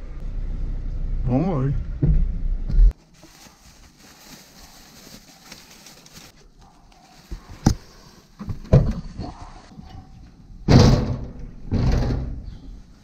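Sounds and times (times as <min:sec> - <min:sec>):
plastic bags and paper rustling: 0:03.0 - 0:08.3
sharp knocks and thumps: 0:10.7 - 0:12.6.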